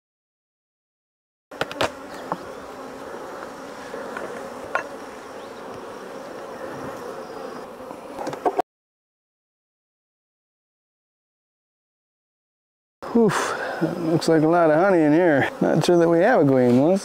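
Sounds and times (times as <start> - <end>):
bees buzzing: 1.5 - 8.6, 13.0 - 17.0.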